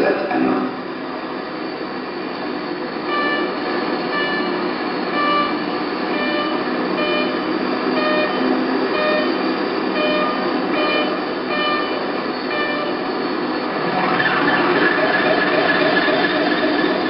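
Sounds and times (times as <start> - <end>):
short electronic beeps: 3.1 - 13.1.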